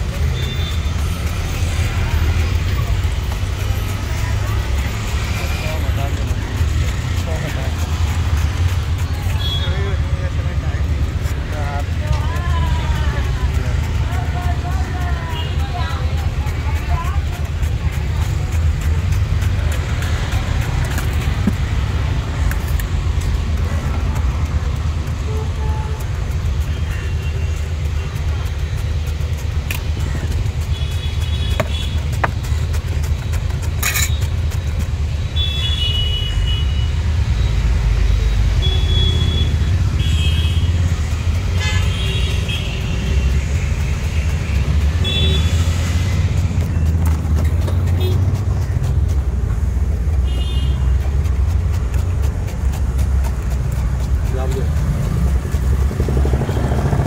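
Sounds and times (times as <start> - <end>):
low rumble of passing vehicles: 0.0 - 57.0
vehicle horn toots: 41.6 - 42.8.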